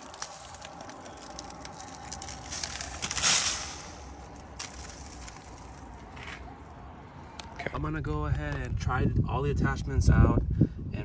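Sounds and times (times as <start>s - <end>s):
debris pouring into bin: 0.0s - 6.0s.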